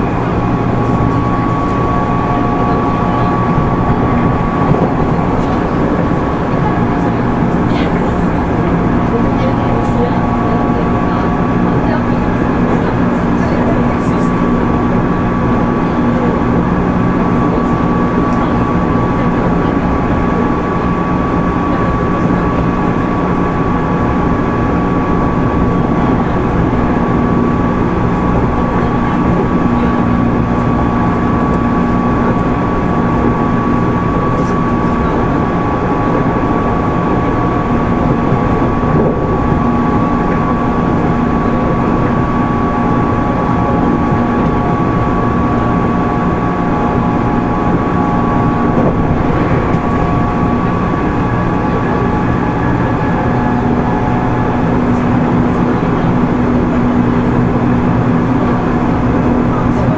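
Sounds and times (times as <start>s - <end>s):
running gear humming: 0.0s - 59.9s
train wheels rumbling on rail: 0.0s - 59.9s.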